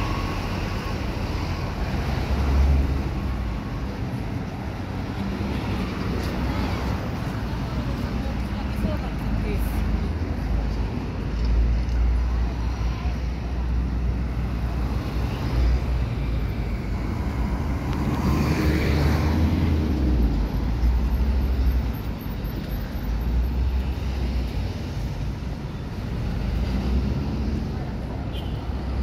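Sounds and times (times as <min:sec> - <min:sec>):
low traffic rumble: 0:00.0 - 0:29.0.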